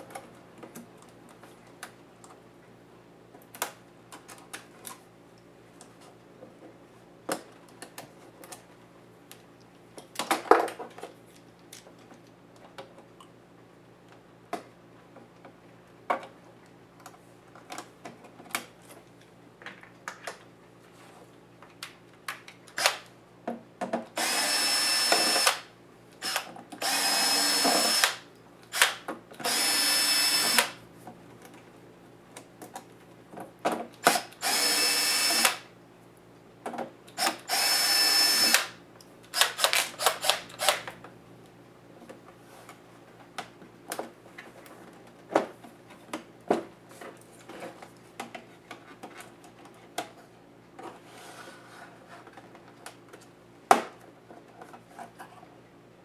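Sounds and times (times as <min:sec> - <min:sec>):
electric screwdriver whining: 0:24.2 - 0:25.6, 0:26.2 - 0:30.8, 0:34.1 - 0:35.6, 0:37.2 - 0:38.7.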